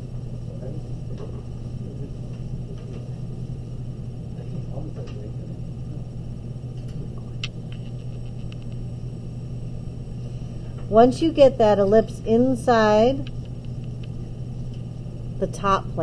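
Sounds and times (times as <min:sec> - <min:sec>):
low room hum: 0:00.0 - 0:16.0
small ticks: 0:13.2 - 0:14.9.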